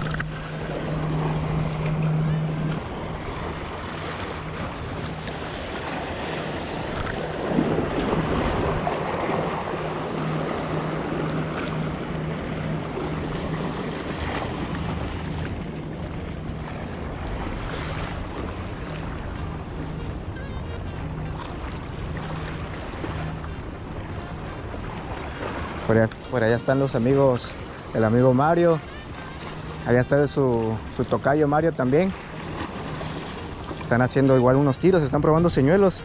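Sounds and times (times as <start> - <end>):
low pulsing hum: 0.0 - 26.3
wind on microphone: 0.0 - 26.3
sea waves washing against rocks: 0.0 - 36.0.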